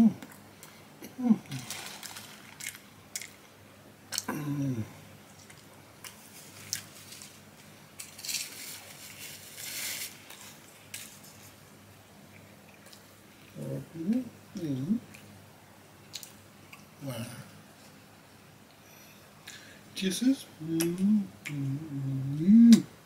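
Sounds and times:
short hum-like vocal sound: 0.0 - 0.3, 1.0 - 1.9, 4.2 - 5.2, 13.5 - 15.1, 17.0 - 17.6, 18.9 - 23.0
paper wrappers rustling: 1.5 - 2.8, 6.1 - 11.6.

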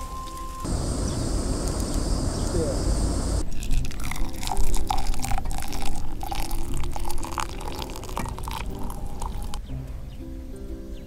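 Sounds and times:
hot water pouring into a mug: 3.5 - 9.6.

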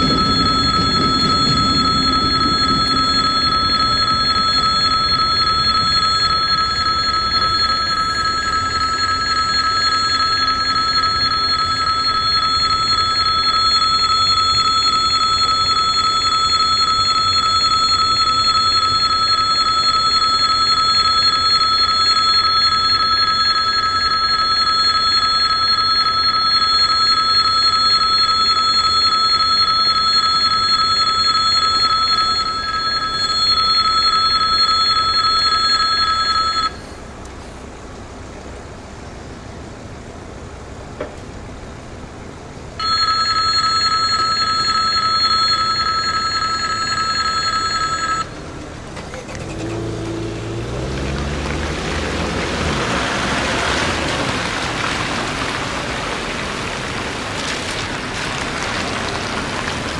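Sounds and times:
level crossing bell ringing: 0.0 - 37.0, 42.8 - 48.4.

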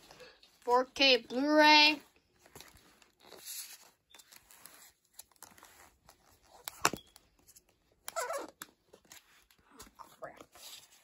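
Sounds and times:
plastic disc case rustling and clicking: 2.4 - 10.0.

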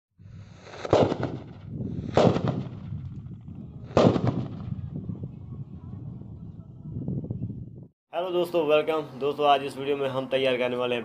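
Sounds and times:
explosive bangs with rumbling tail: 0.6 - 5.2.

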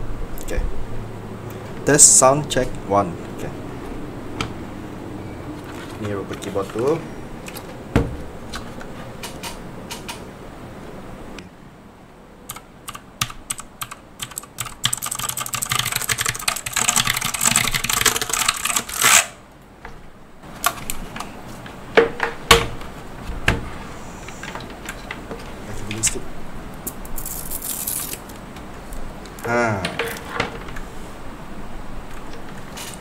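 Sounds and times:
clicky mechanical keyboard typing: 12.5 - 19.0.

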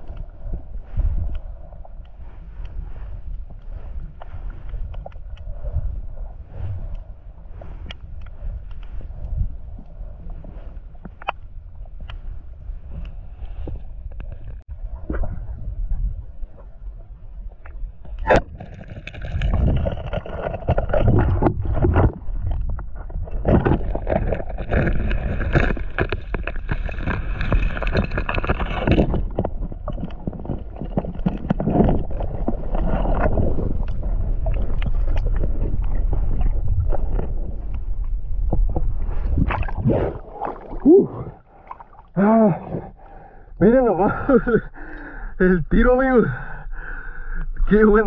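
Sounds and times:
underwater water rush: 12.8 - 43.3
small underwater knocks and clicks: 17.6 - 39.8
diver vocal sounds: 39.8 - 44.7.

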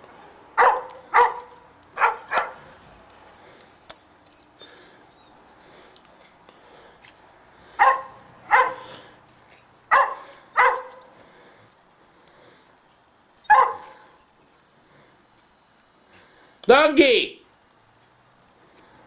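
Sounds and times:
dog barking: 0.6 - 2.7, 7.8 - 9.0, 9.9 - 11.1, 13.5 - 14.1.

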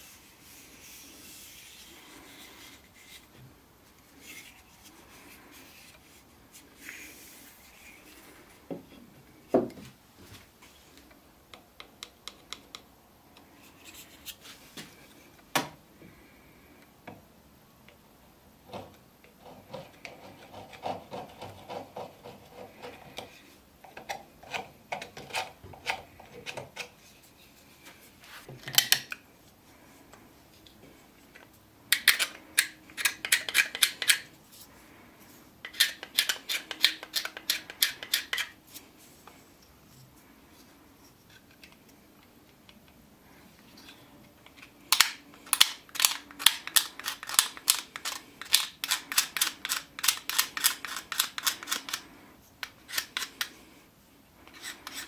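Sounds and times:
blade scraping wood: 54.5 - 55.0.

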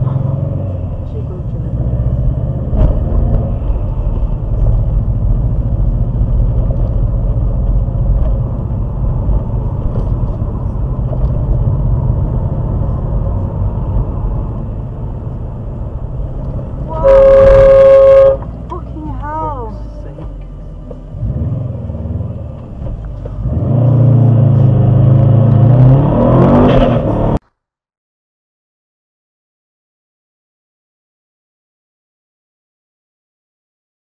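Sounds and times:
car road and engine rumble: 0.0 - 27.4
car horn blast: 16.9 - 18.5.

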